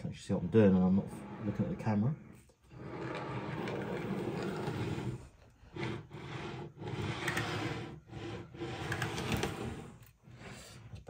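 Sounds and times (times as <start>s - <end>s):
model wagon wheels rolling: 2.7s - 10.6s
pen scraping across board: 2.8s - 10.5s.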